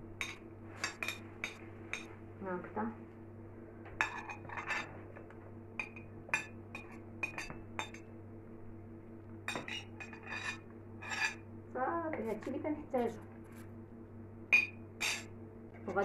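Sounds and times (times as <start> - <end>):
faint steady hum: 0.0 - 16.0
metal spoon clinking on plate and jars: 4.0 - 4.9, 5.8 - 8.1, 9.5 - 11.4, 14.6 - 15.3.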